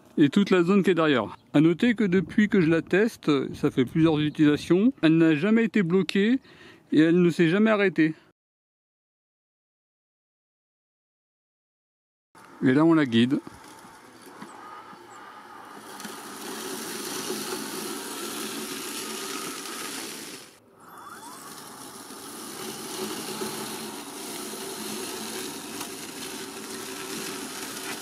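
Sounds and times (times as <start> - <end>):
robot lawn mower motors whirring: 12.4 - 28.0.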